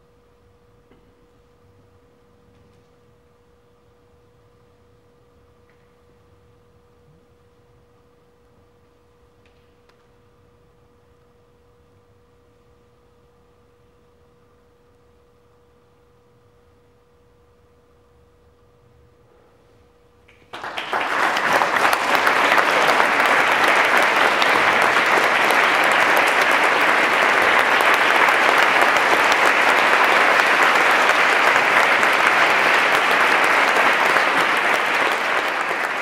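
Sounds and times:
audience applause: 20.5s - 36.0s.

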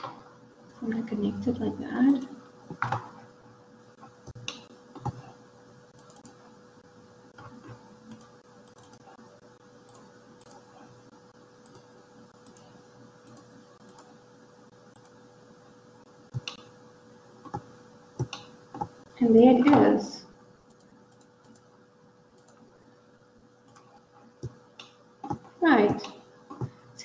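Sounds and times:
faint steady hum: 0.0s - 27.0s
computer mouse clicks: 4.3s - 5.3s, 6.0s - 6.4s, 7.4s - 9.2s, 9.8s - 10.8s, 11.6s - 14.2s, 17.5s - 19.0s, 20.6s - 21.7s, 22.4s - 22.7s, 23.6s - 26.8s.

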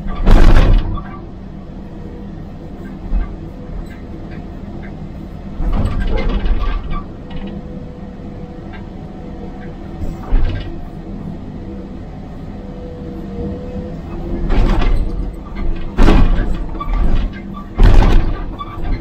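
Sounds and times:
excavator engine hum: 0.0s - 19.0s.

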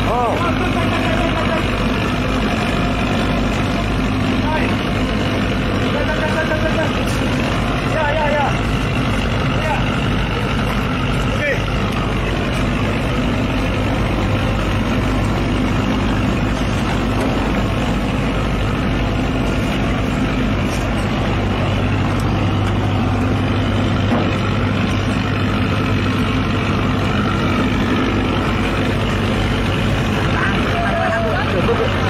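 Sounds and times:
engine idling: 0.0s - 32.0s.

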